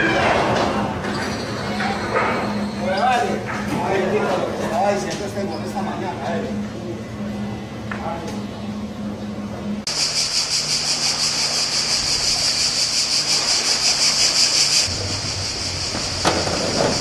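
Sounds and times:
cicadas buzzing: 0.8 - 3.4, 9.9 - 17.0.

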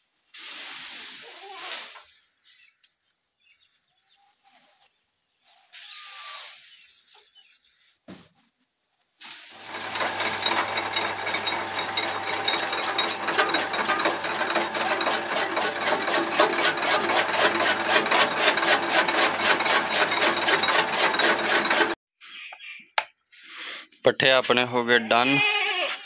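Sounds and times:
blades chopping fodder: 9.6 - 22.0
motor humming: 9.6 - 22.0.

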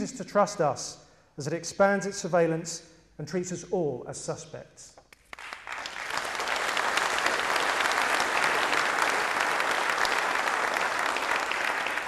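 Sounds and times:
audience applauding: 5.2 - 12.0.

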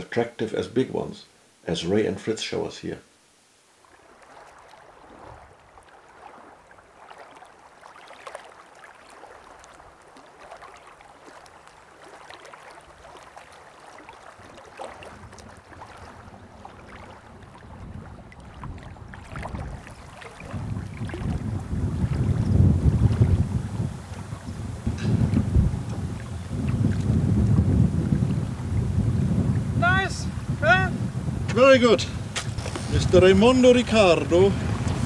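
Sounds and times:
wind blowing across microphone: 15.0 - 35.0.

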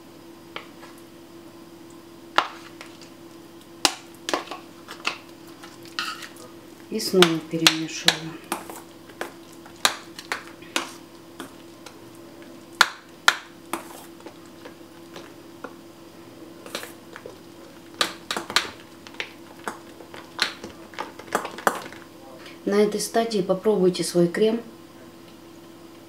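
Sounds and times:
steady hum: 0.0 - 26.0.

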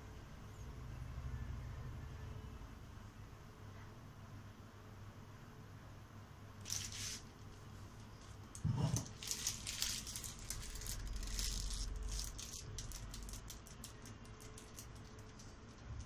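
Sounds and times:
plastic piping bag crinkling: 6.6 - 16.0.

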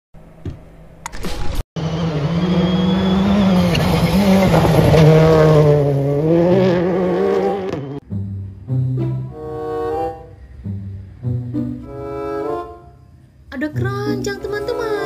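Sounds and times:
rally car engine at high revs: 1.8 - 8.0.

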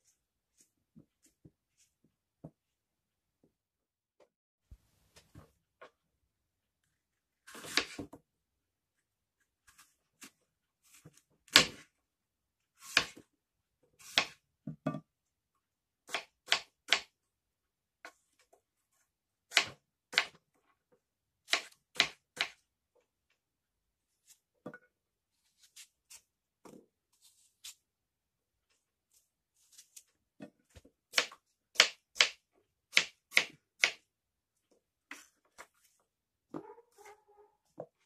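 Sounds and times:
knife slicing apple: 7.4 - 8.2, 12.8 - 13.2, 14.0 - 14.4.

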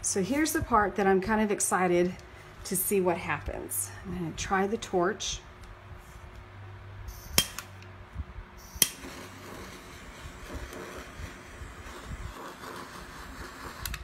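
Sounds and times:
blow torch igniter clicking: 8.6 - 14.0.

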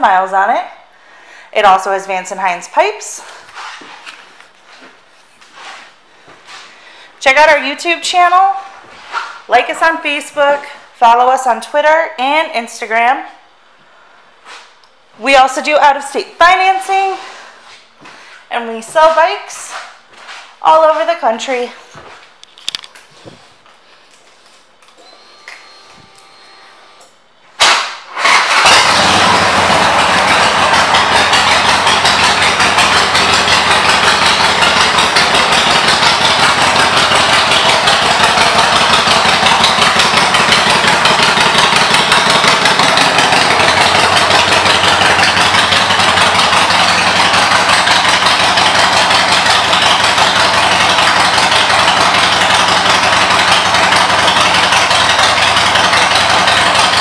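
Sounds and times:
motorcycle engine starting and idling: 24.9 - 57.0.

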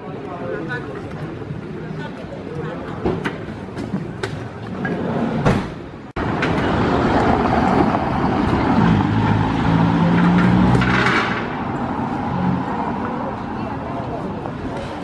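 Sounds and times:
road traffic: 0.0 - 15.0
large vehicle engine hum: 6.1 - 15.0.

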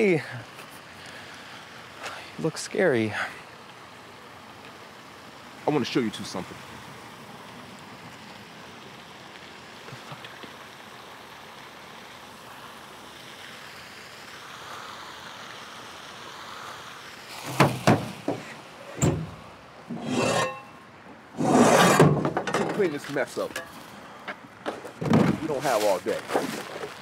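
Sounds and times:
outdoor background hiss: 0.0 - 27.0
scraping rustling sound: 17.4 - 20.8, 21.4 - 23.9, 24.8 - 27.0
sharp knocks: 17.5 - 20.5.

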